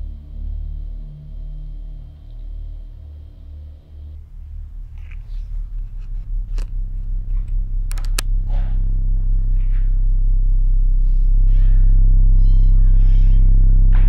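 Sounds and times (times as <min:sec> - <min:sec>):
low pulsing synthesized drone: 0:00.0 - 0:14.0
sharp clicks: 0:07.4 - 0:08.3.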